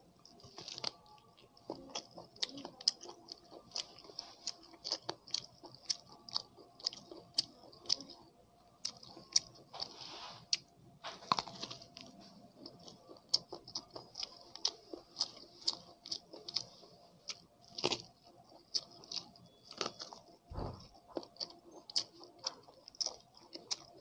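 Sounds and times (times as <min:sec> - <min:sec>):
chewing corn on the cob: 0:00.0 - 0:24.0
soft low bump: 0:20.5 - 0:20.9.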